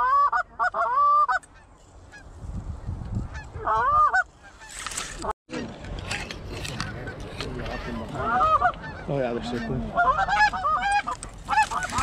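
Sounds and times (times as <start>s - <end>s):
geese honking: 0.0s - 2.3s, 3.3s - 12.0s
brief rustle: 4.6s - 7.8s, 11.0s - 12.0s.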